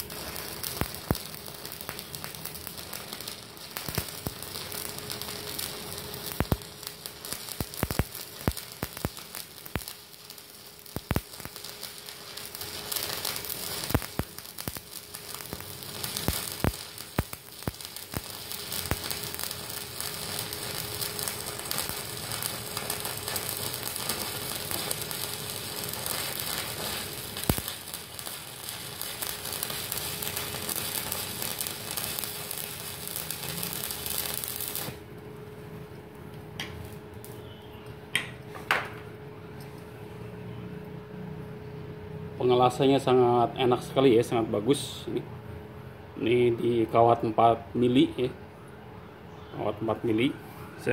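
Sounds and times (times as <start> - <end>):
welding arc crackling and sizzling: 0.0 - 37.5.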